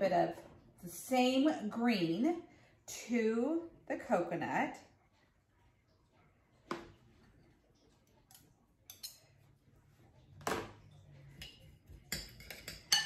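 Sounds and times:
metal spoon clinking glass bowl: 0:08.3 - 0:09.4, 0:11.3 - 0:13.0.

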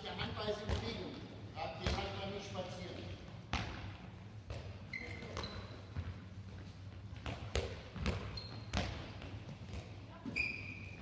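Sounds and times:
handball bouncing on floor: 0:03.5 - 0:10.1
shoes squeaking on floor: 0:04.8 - 0:06.9, 0:08.0 - 0:09.1, 0:10.2 - 0:11.0.

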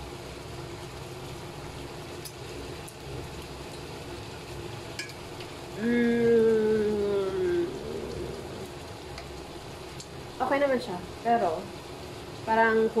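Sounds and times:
food sizzling in oil: 0:00.0 - 0:13.0
woman humming mmm: 0:05.8 - 0:08.8.

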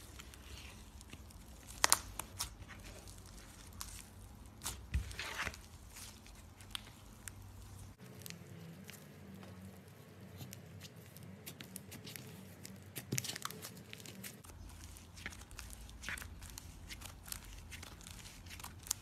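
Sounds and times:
slime squishing: 0:00.0 - 0:19.0
slime crackling and clicking: 0:01.0 - 0:04.8.

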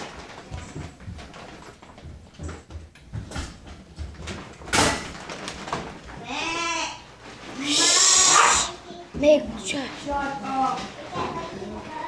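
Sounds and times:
paws scuffling on hardwood floor: 0:00.0 - 0:06.2, 0:09.1 - 0:12.0.

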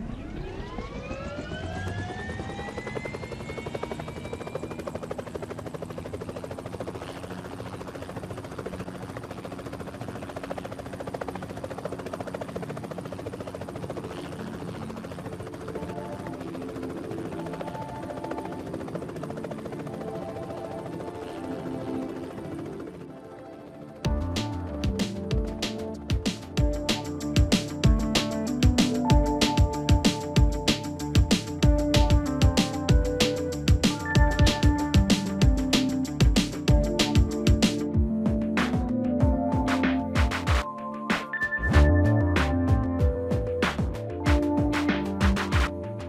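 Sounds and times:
helicopter rotor beating: 0:00.0 - 0:46.0
helicopter turbine whine: 0:00.0 - 0:46.0
music: 0:12.1 - 0:46.0.

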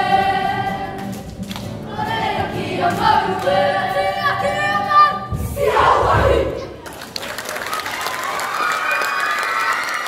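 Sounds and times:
boys singing together: 0:00.0 - 0:01.0, 0:01.9 - 0:04.8.

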